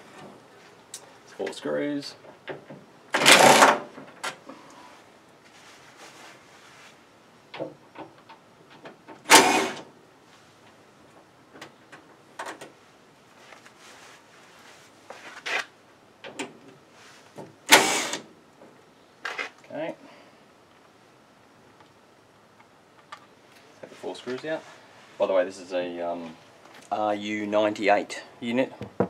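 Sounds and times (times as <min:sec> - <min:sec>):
cordless driver backing out screws: 0:03.1 - 0:04.4, 0:09.2 - 0:09.9, 0:17.7 - 0:18.3.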